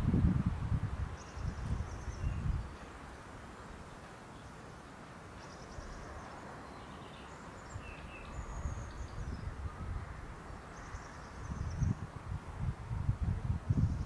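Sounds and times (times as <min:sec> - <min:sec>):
wind rumbling on microphone: 0:00.0 - 0:04.0, 0:07.7 - 0:14.0
wind blowing over grass: 0:00.0 - 0:14.0
small birds chirping: 0:01.2 - 0:03.0, 0:03.6 - 0:09.7, 0:10.4 - 0:12.0.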